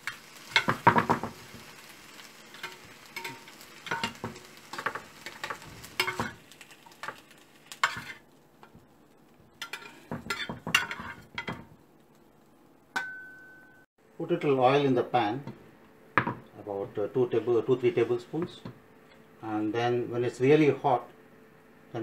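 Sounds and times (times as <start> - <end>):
bacon sizzling in a frying pan: 0.0 - 12.5
metal spatula scraping pan: 7.8 - 8.2, 9.6 - 11.6.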